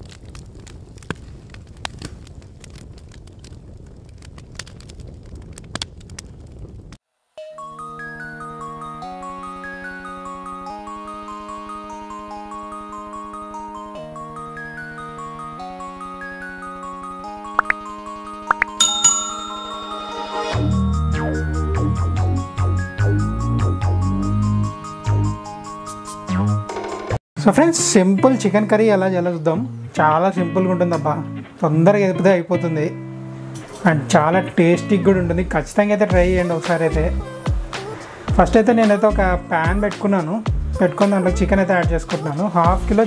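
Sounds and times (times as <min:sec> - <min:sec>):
fire crackling and popping: 0:00.0 - 0:07.0
bell-like chime: 0:18.7 - 0:22.4
deep bass and beat: 0:36.1 - 0:36.5, 0:38.3 - 0:38.6, 0:39.7 - 0:39.9, 0:40.5 - 0:42.1, 0:42.7 - 0:43.0.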